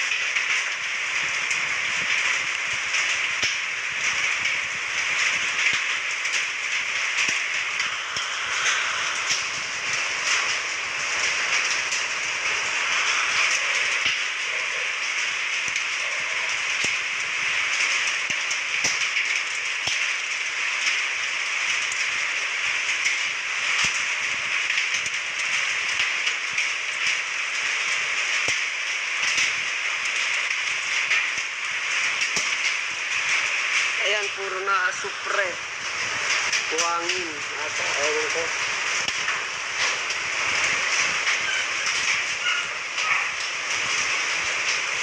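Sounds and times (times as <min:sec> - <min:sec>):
sandy rain pattering: 0:00.0 - 0:45.0.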